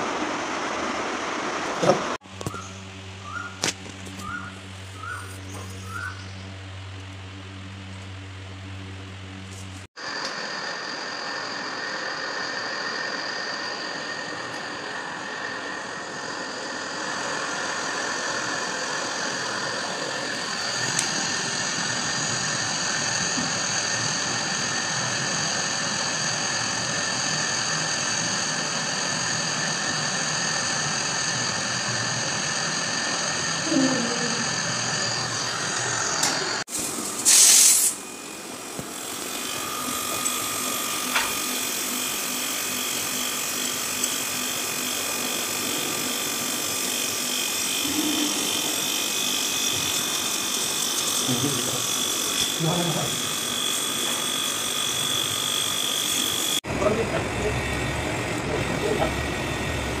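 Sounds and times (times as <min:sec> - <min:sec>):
gas torch hissing: 0:09.9 - 1:00.0
brief loud hiss: 0:36.7 - 0:38.0.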